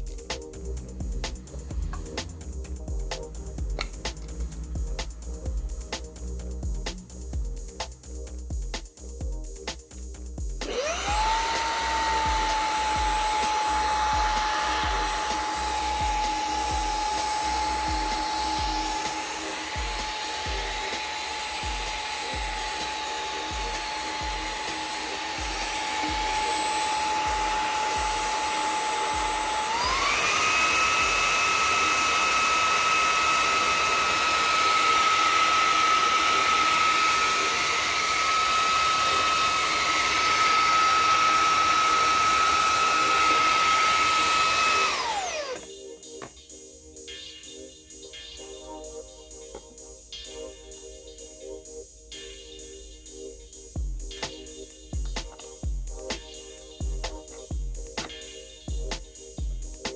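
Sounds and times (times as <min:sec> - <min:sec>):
handheld vacuum motor whine: 0:10.6 - 0:46.3.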